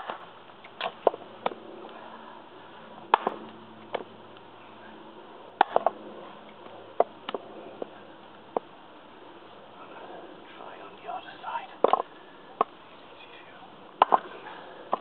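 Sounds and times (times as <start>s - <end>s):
axe chopping into log: 3.1s - 4.1s, 5.6s - 6.0s, 14.0s - 14.3s.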